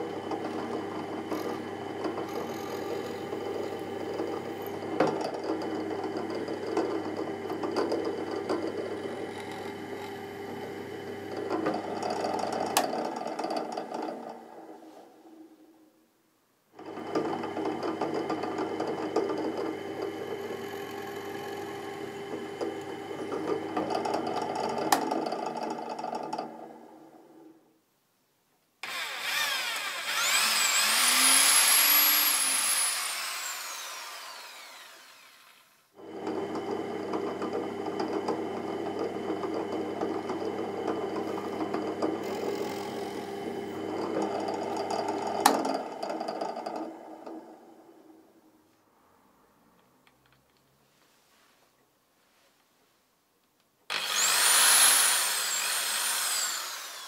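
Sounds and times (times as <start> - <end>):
drill press running: 0.0 - 14.7, 28.8 - 47.6, 53.9 - 57.0
electric drill whining: 1.3 - 3.8, 28.8 - 35.8, 41.2 - 43.8, 53.9 - 57.0.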